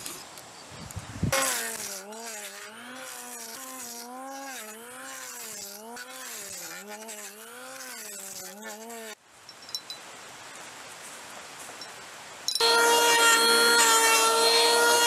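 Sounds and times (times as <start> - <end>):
electric planer shaving wood: 1.4 - 9.1, 12.6 - 15.0.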